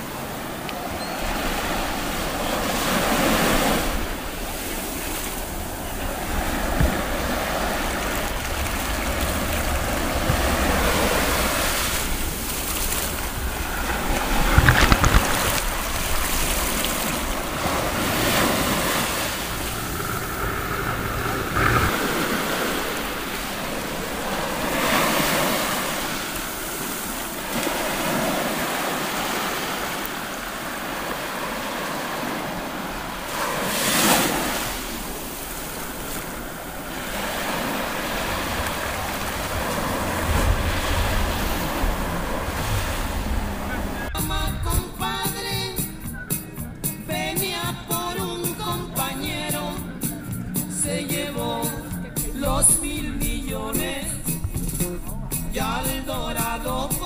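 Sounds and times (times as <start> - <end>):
churning water over camera: 0.0 - 44.2
wind buffeting the microphone: 0.0 - 47.3
surf breaking on a sandy beach: 0.0 - 57.0.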